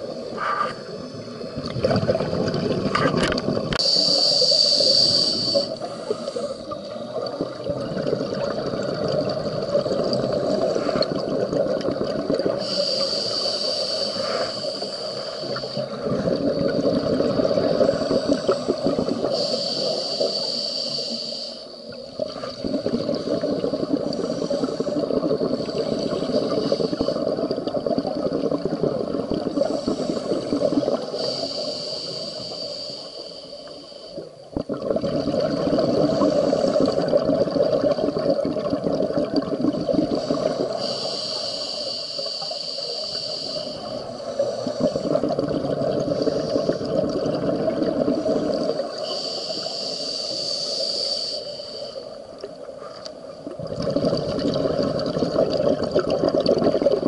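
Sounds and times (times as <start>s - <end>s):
bubbling exhaled air: 0.0s - 52.7s, 53.4s - 57.0s
diver breathing through regulator: 3.7s - 7.0s, 12.5s - 16.0s, 17.2s - 21.9s, 22.8s - 27.5s, 29.4s - 34.4s, 35.8s - 37.2s, 40.0s - 47.1s, 47.8s - 52.3s.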